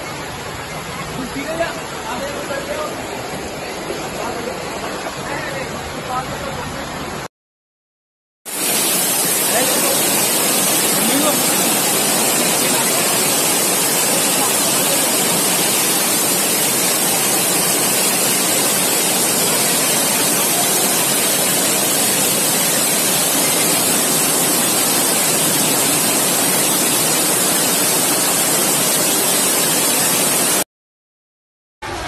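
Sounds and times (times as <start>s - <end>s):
floodwater rushing: 8.5s - 30.6s.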